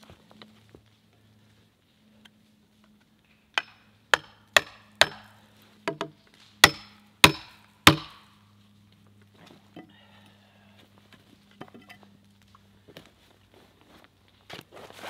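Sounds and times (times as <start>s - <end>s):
wedge being hammered into log: 3.6s - 8.2s.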